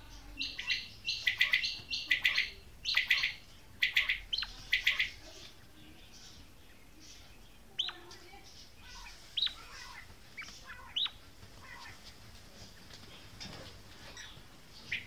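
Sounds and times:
quail calling: 0:00.4 - 0:05.2, 0:08.8 - 0:12.1, 0:14.1 - 0:15.0.

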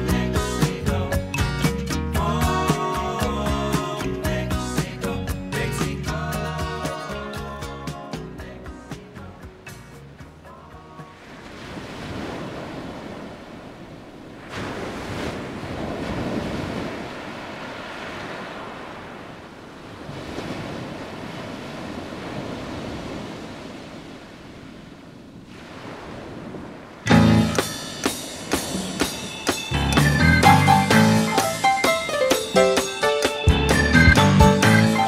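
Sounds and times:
ocean surf rushing: 0:10.6 - 0:35.0.

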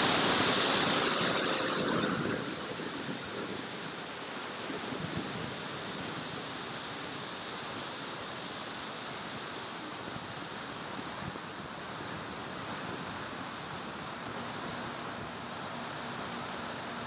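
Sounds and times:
electric ducted fans whirring: 0:00.0 - 0:17.0.

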